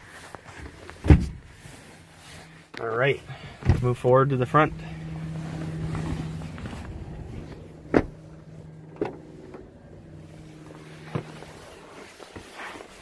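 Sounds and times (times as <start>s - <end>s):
faint low hum: 3.3s - 12.3s.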